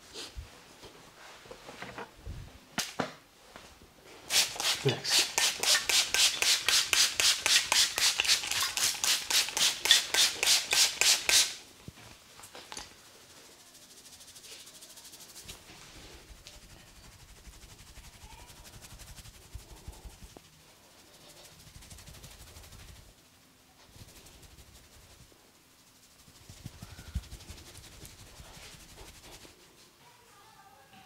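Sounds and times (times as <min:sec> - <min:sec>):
faint rubbing: 0:12.8 - 0:30.8.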